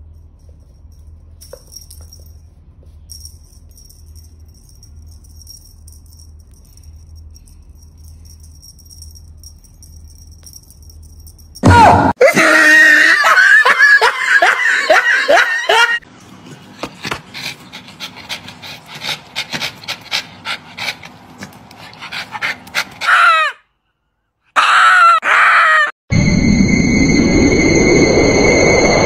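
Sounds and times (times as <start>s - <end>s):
dog yelping and whining: 21.9s - 23.6s.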